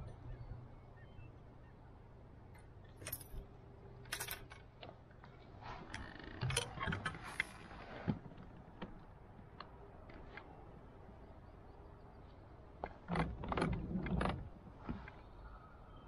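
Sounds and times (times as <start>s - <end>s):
low steady hum: 0.0s - 16.0s
metallic clinks and rattling gear: 2.9s - 3.4s, 4.0s - 4.6s.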